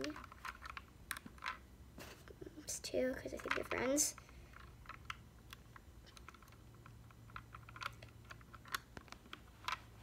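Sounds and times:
plastic toy clicks and taps: 3.3 - 9.8.

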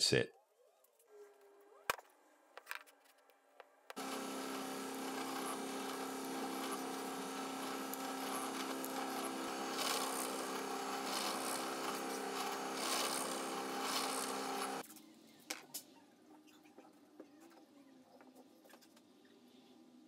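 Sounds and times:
drill press motor humming: 3.9 - 14.8
drill bit cutting into wood: 4.0 - 14.8.

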